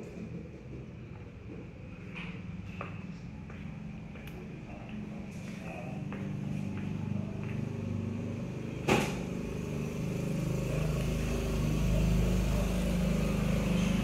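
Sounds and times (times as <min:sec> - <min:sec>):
vehicle engine running: 0:05.3 - 0:14.0.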